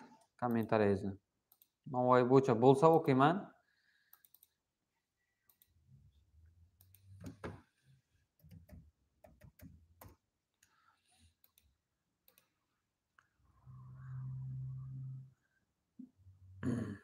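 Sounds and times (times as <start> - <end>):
computer mouse and keys clicking: 1.5 - 1.8, 4.0 - 4.6, 5.4 - 5.8, 6.7 - 7.6, 8.3 - 12.6.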